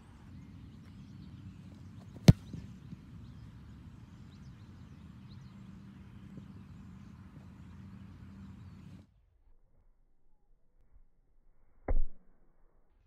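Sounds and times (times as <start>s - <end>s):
foot kicking football thud: 2.0s - 2.7s.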